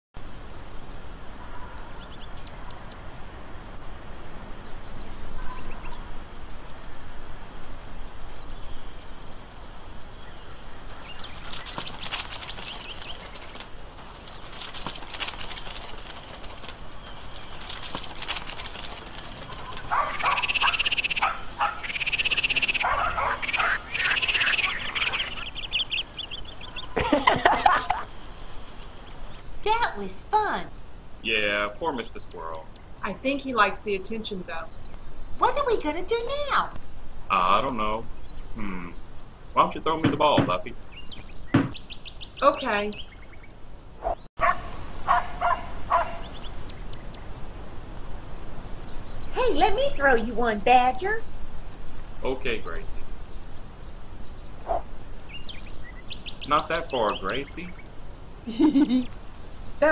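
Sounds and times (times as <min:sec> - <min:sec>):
arching animal calls: 0:10.9 - 0:28.1, 0:44.0 - 0:46.4, 0:54.6 - 0:55.0, 0:56.2 - 0:57.8
fast rattling trills: 0:10.9 - 0:28.8, 0:48.6 - 0:55.5.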